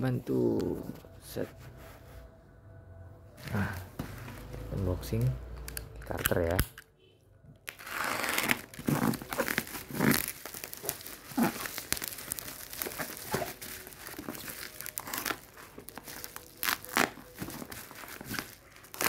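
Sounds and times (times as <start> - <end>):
plastic wrap crinkling and tearing: 7.6 - 19.0.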